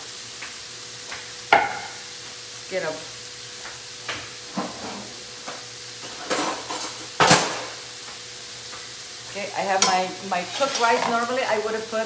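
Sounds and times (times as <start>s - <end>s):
vegetables sizzling in skillet: 0.0s - 12.0s
kitchenware clattering: 1.6s - 2.0s, 6.0s - 7.7s, 9.8s - 11.4s.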